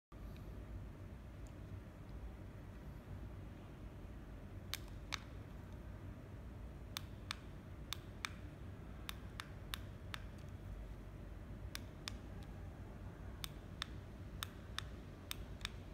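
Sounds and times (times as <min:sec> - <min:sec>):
low steady hum: 0:00.1 - 0:15.9
remote control buttons clicking: 0:04.6 - 0:05.9, 0:06.8 - 0:10.7, 0:11.6 - 0:12.6, 0:13.4 - 0:15.9.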